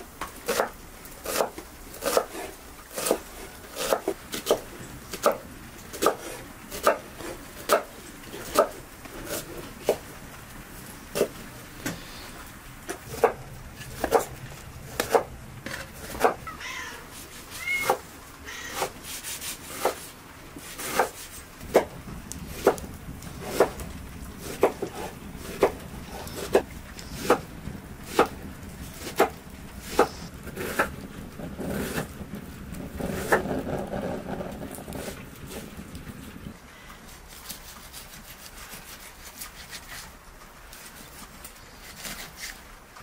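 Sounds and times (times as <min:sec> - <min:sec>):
knife chopping meat on wooden board: 0:00.5 - 0:02.4, 0:03.8 - 0:04.6, 0:13.0 - 0:15.3, 0:20.8 - 0:22.0, 0:22.6 - 0:23.8, 0:27.2 - 0:27.4
cat mewing: 0:16.3 - 0:19.0.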